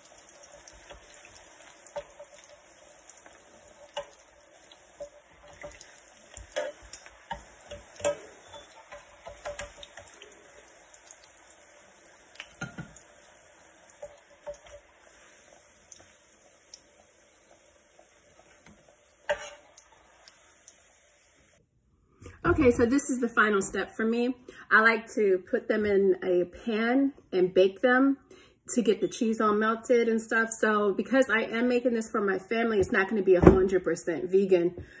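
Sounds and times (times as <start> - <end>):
tortillas sizzling in a skillet: 0.0 - 21.6
fork and spatula scraping pan: 19.3 - 19.7.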